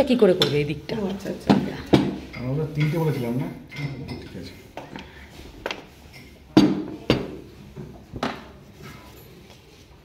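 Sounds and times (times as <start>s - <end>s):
metal spoons clinking on ceramic dishes: 2.2s - 4.6s.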